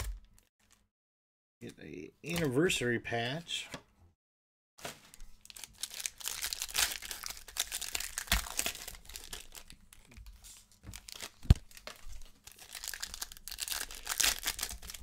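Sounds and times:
plastic wrapper tearing and crinkling: 4.8s - 15.0s.

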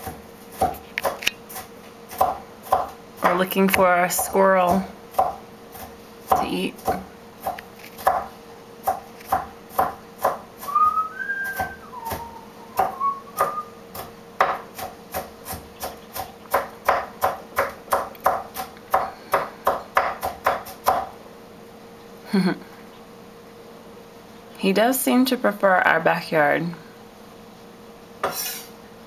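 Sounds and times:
rising whistled chirps: 10.7s - 13.8s.

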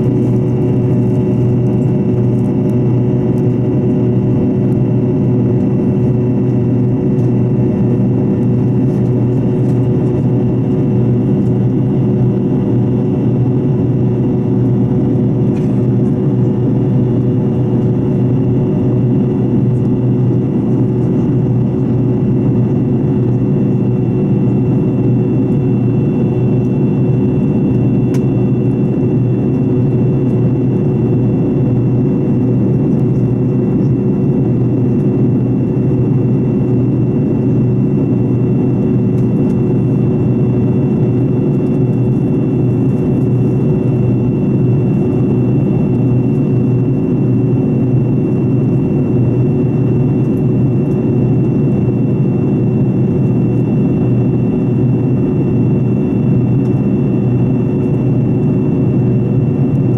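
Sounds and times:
jet engine drone and whine: 0.0s - 59.9s.

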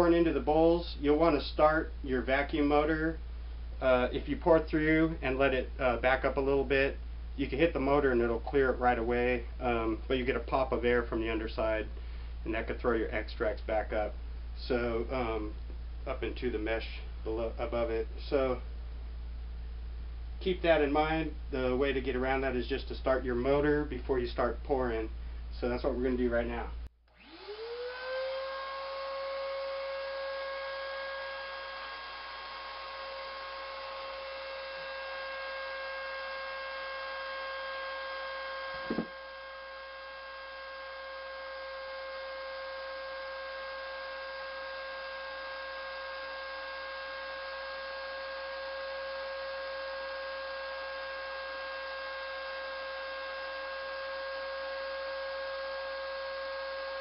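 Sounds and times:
shop vacuum motor whining: 27.1s - 57.0s.

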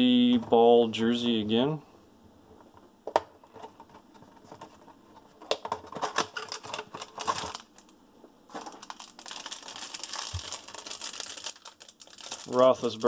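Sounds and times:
plastic crinkling: 4.4s - 13.0s.

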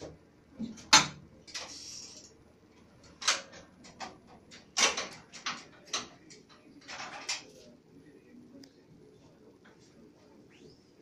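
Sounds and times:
printing press clicks and knocks: 0.0s - 1.3s, 3.0s - 7.5s.

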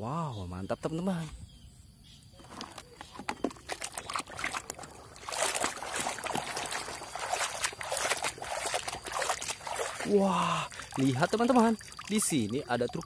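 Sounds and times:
water sloshing and splashing: 2.4s - 13.0s.

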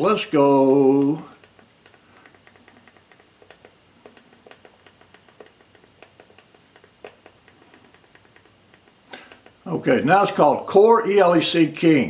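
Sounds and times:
remote control buttons clicking: 1.0s - 9.7s.

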